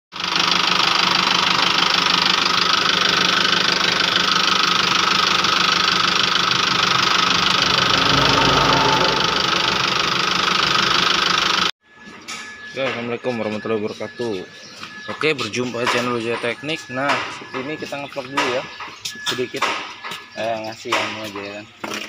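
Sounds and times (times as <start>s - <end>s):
diesel engine knocking: 0.2s - 7.3s.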